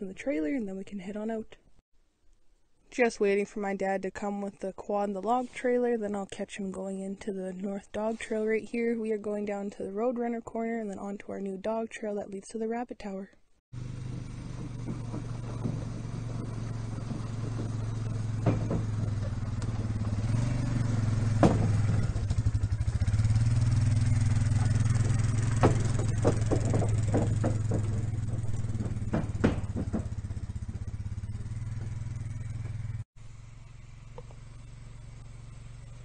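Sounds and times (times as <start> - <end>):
trailer knocking and rattling: 13.8 - 33.0
quad engine driving past: 13.8 - 36.0.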